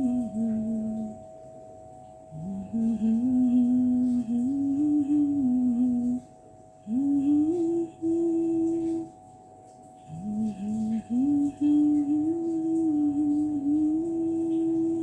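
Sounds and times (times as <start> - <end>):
faint steady drone: 0.0 - 15.0
person humming a slow melody: 0.0 - 15.0.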